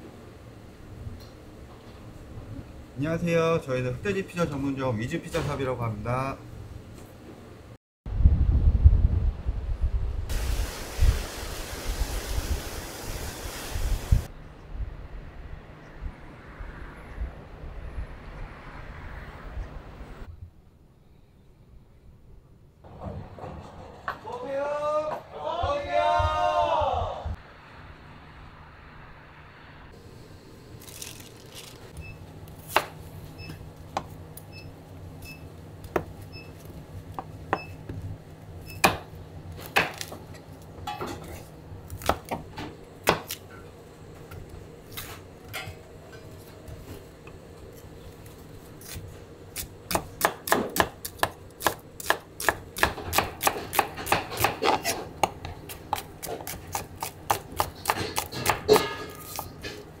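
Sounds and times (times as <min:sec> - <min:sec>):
knife cutting onions on board: 0:48.8 - 0:59.8.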